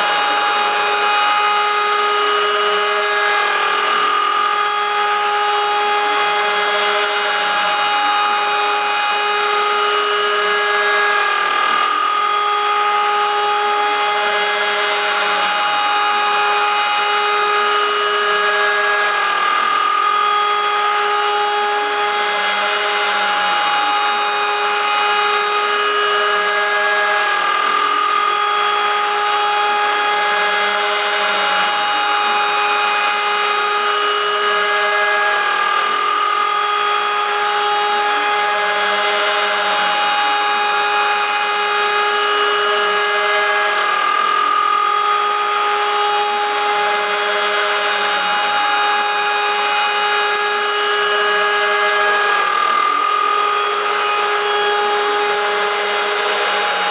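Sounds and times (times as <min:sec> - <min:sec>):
metal cutting noise: 0:00.0 - 0:56.9
router spindle whining: 0:00.0 - 0:56.9.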